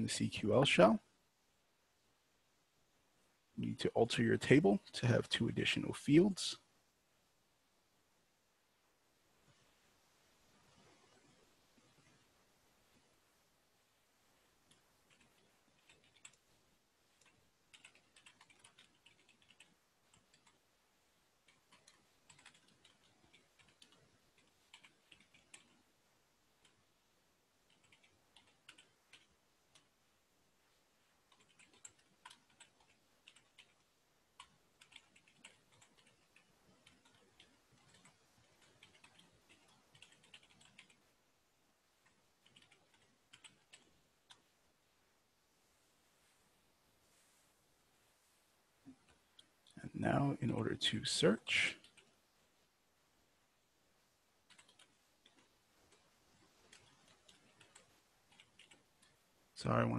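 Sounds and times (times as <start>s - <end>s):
typing on computer keyboard: 14.7s - 16.4s, 17.1s - 20.6s, 21.4s - 25.8s, 27.6s - 29.9s, 31.3s - 41.0s, 42.0s - 44.4s, 51.8s - 52.2s, 54.4s - 59.2s.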